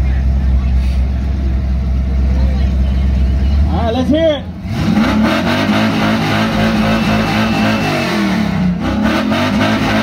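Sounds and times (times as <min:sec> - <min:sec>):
pickup engine revving hard: 0:04.6 - 0:10.0.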